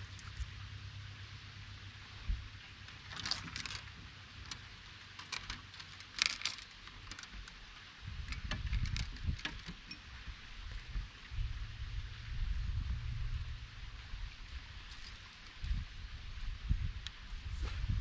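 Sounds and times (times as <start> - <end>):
light clicks and rattles: 2.8 - 11.4
low rumble: 10.2 - 18.0.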